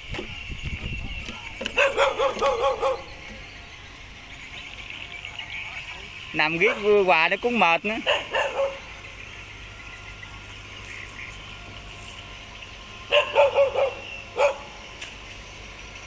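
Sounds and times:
dog barking: 1.7 - 3.1, 8.0 - 8.9, 13.1 - 14.8.

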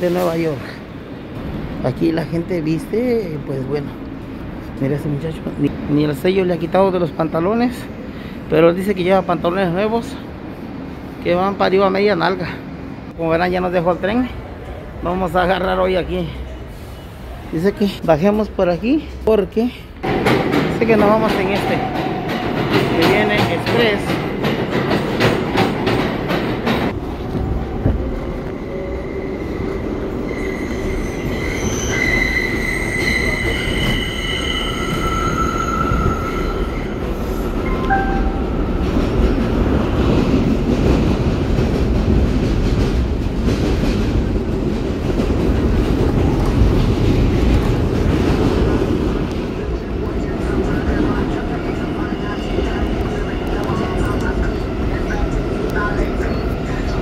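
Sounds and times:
low rumble of train car: 0.0 - 57.0
train wheels clattering: 20.0 - 28.1
high squealing tones: 28.6 - 38.7.

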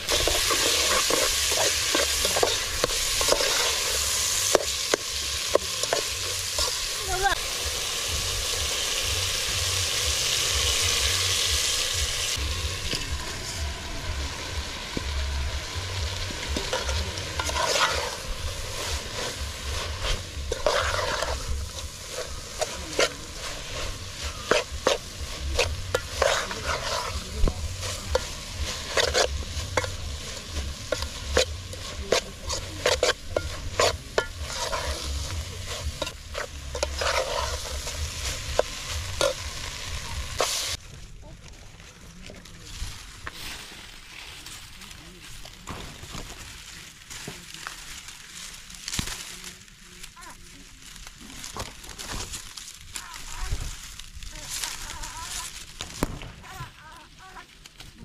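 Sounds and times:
frying sizzle: 0.0 - 40.8, 42.6 - 58.0
metal spoon scraping pot: 16.7 - 18.2, 20.0 - 30.0, 30.8 - 39.5.

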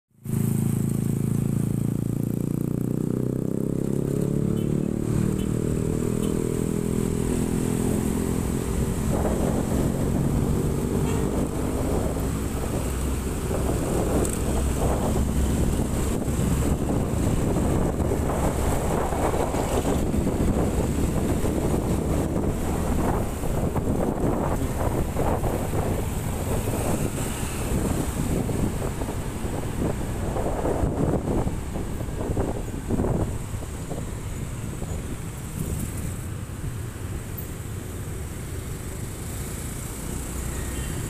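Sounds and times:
motorcycle engine running: 0.2 - 34.0
wind buffeting microphone: 5.1 - 36.8.

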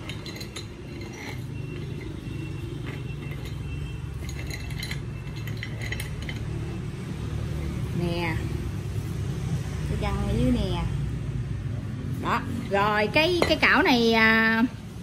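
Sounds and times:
metal clinks of gear puller: 2.8 - 6.6.

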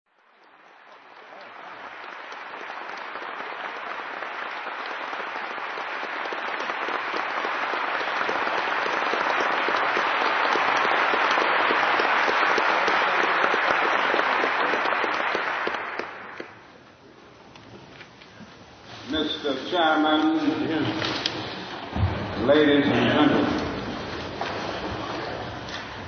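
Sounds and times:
large audience applauding: 0.1 - 16.8, 19.2 - 26.0.

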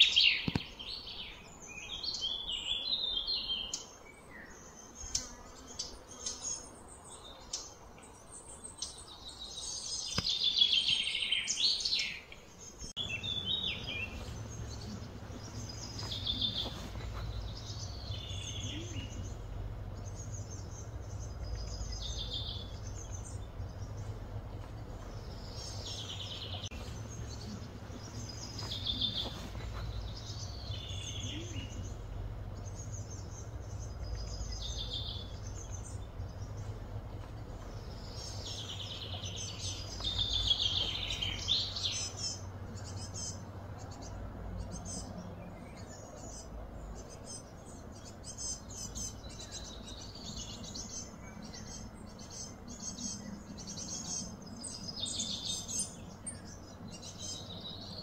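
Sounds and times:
birds chirping: 0.0 - 58.0
low background rumble: 12.5 - 58.0.

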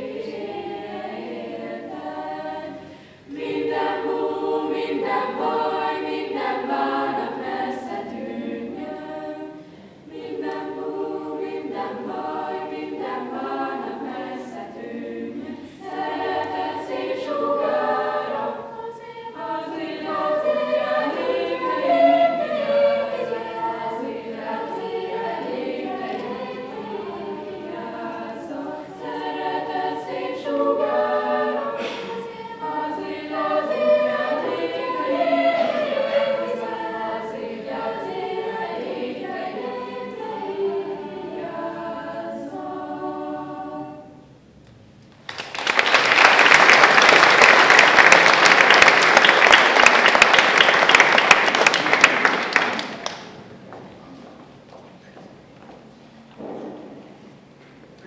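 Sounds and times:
choir singing a cappella: 0.0 - 44.5.

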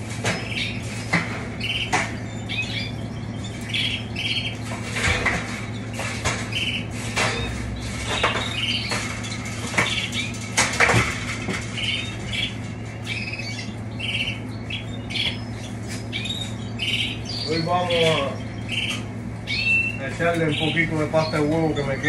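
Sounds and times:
clicks and knocks from wire cages: 0.0 - 16.6
canaries chirping: 0.0 - 22.0
steady low hum: 0.0 - 22.0.

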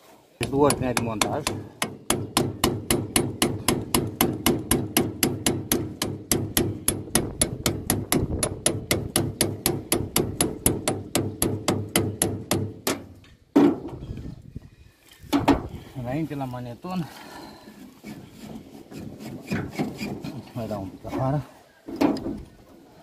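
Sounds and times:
hammer tapping metal: 0.4 - 13.0.

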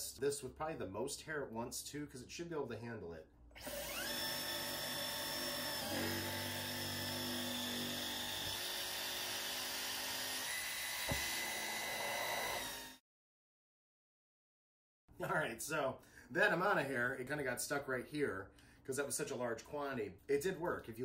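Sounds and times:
vacuum cleaner whining: 3.6 - 13.0.

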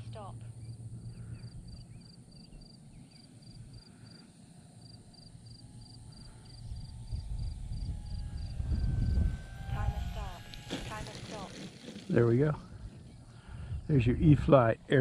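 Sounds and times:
insect chirping: 0.0 - 10.7
model plane motor whine: 0.0 - 15.0
low rumble: 5.8 - 15.0.

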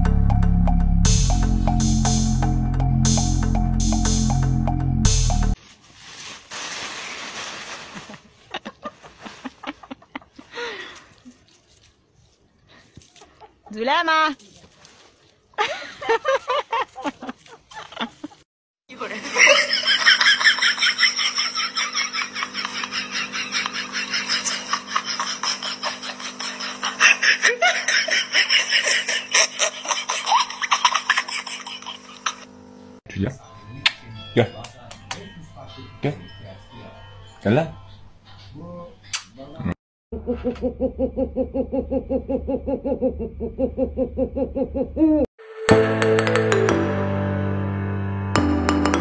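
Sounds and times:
dry leaves rustling and crunching: 5.6 - 9.6, 11.3 - 12.4, 14.4 - 15.4
person laughing hard: 8.0 - 10.7, 19.2 - 32.4, 40.2 - 45.3.

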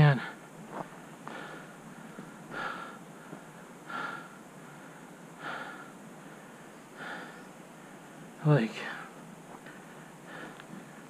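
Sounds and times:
man breathing heavily: 0.0 - 11.0.

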